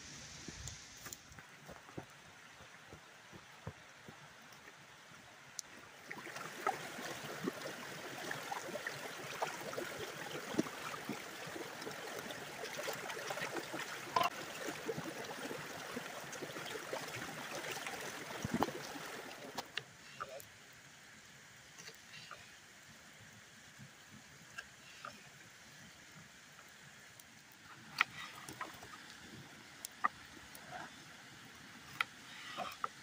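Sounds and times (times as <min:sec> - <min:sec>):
creek running: 0:00.0 - 0:33.0
splashing and sloshing: 0:06.0 - 0:19.7.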